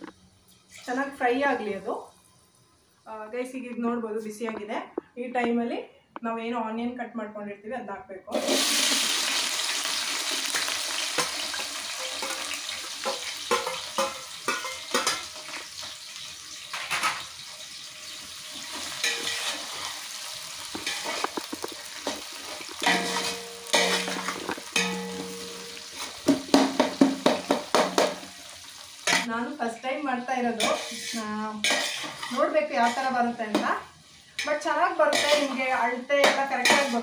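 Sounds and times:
onions frying in oil: 0.0s - 3.3s, 8.3s - 37.0s
spoon scraping a pot: 18.7s - 20.1s, 20.7s - 26.2s, 30.6s - 33.2s, 35.2s - 35.6s, 36.3s - 37.0s.

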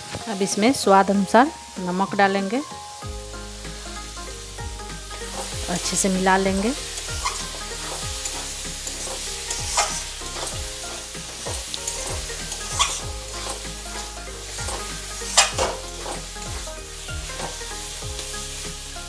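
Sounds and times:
food sizzling: 0.0s - 19.0s
metal spatula scraping pan: 4.8s - 19.0s.

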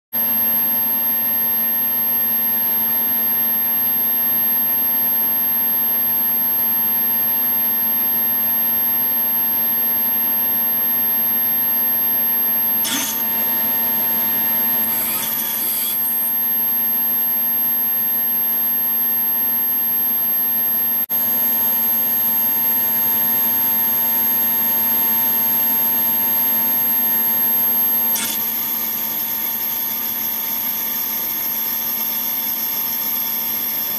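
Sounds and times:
high-pitched whine: 9.8s - 20.8s
servo actuator whirring and humming: 9.9s - 18.1s, 25.9s - 33.9s.

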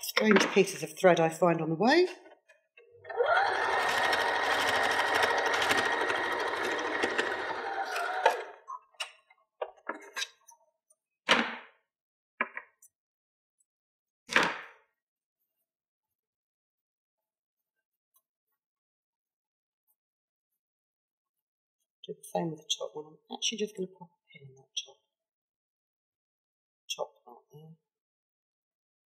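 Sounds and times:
electric sewing machine sewing: 3.0s - 8.7s.

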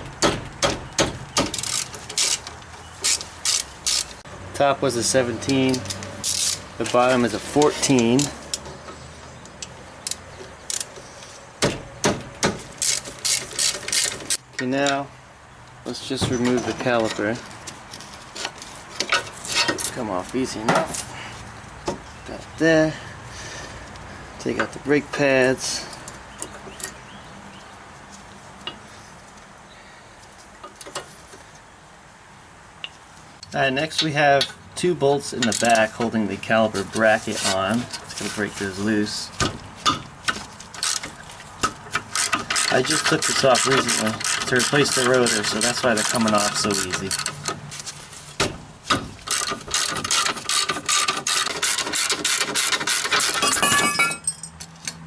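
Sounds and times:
ratchet wrench clicking rapidly: 1.5s - 2.4s
metallic clicks and clinks: 49.3s - 55.0s.

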